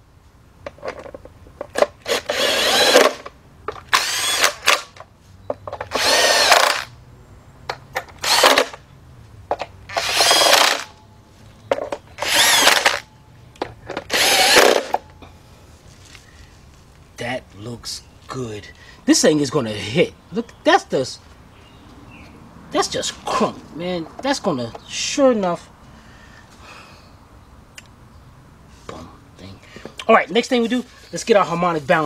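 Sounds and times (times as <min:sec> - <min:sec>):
cordless power tool motor running: 0:02.0 - 0:03.2, 0:03.9 - 0:04.8, 0:05.9 - 0:06.9, 0:08.2 - 0:08.8, 0:09.9 - 0:10.9, 0:12.2 - 0:13.0, 0:14.1 - 0:15.0.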